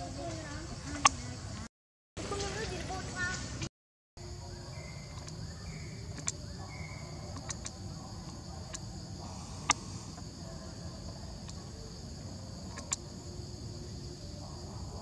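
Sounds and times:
high insect chorus: 0:00.0 - 0:15.0
sharp clicks: 0:06.1 - 0:06.4, 0:07.3 - 0:08.8, 0:09.6 - 0:09.9, 0:12.6 - 0:13.0.

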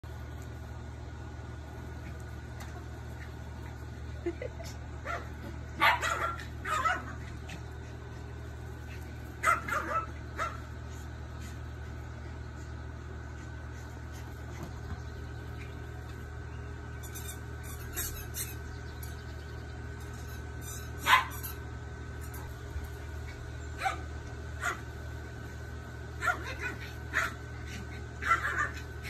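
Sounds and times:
steady low hum: 0:00.1 - 0:29.0
small dogs yipping: 0:04.3 - 0:07.6, 0:09.4 - 0:10.6, 0:17.1 - 0:18.7, 0:20.1 - 0:21.6, 0:26.2 - 0:29.0.

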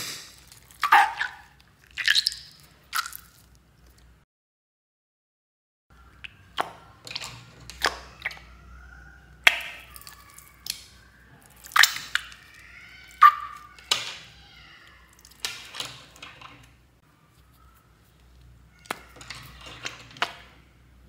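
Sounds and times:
slime squelching and popping: 0:00.0 - 0:04.0, 0:09.4 - 0:16.5
faint squeaky sounds: 0:06.0 - 0:21.0.

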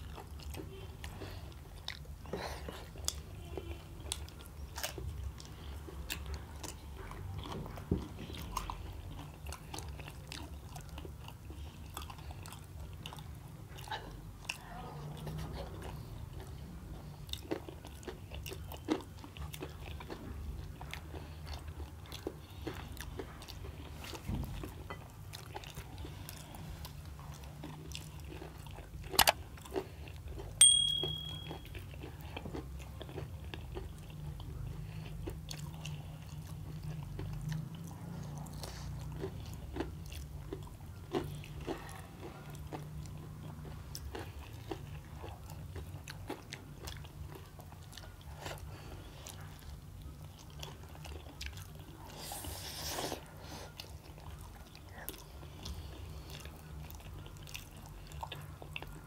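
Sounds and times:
wet chewing: 0:00.0 - 0:59.0
sharp ringing clink: 0:30.6 - 0:31.6.

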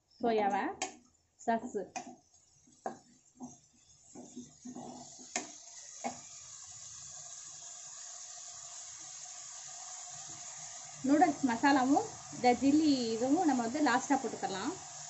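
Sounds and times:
noodles sizzling in a pan: 0:00.0 - 0:15.0
wooden spatula scraping and stirring: 0:02.2 - 0:05.4.

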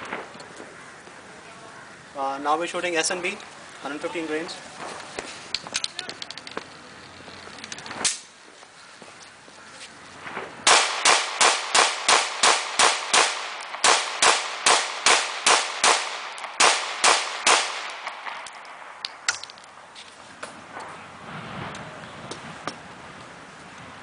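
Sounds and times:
pistol shots: 0:10.3 - 0:18.5.

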